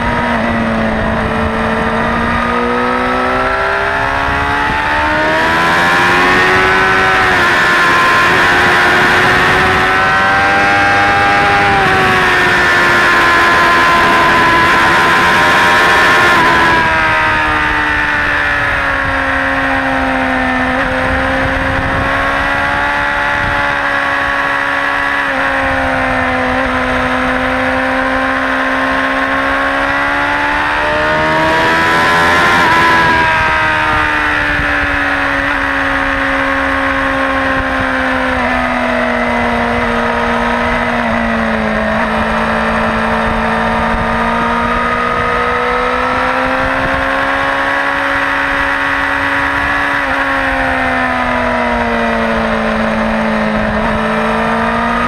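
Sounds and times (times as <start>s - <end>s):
motorcycle engine at high revs: 0.0s - 55.0s
wind noise: 0.0s - 55.0s.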